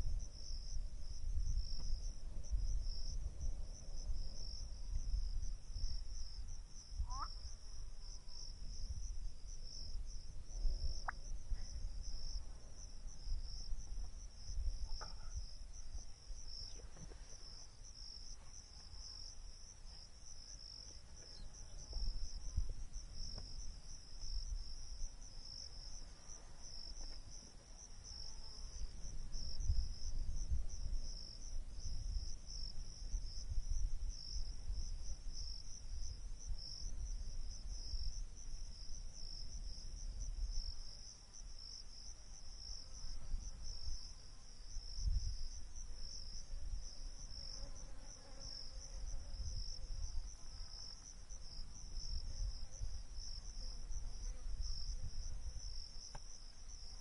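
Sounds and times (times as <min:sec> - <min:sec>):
insect chorus trilling: 0:04.2 - 0:09.0.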